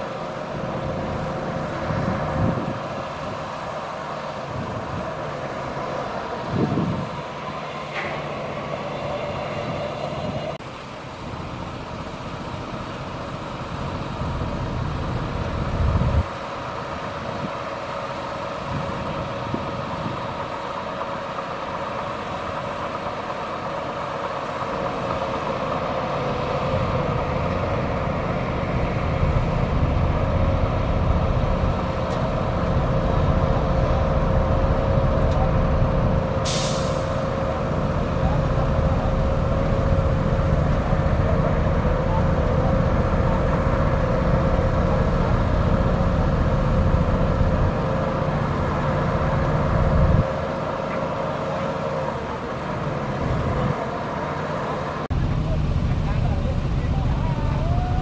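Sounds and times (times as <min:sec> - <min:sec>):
bulldozer diesel engine under load: 0:00.0 - 0:58.0
short hiss: 0:36.4 - 0:37.5.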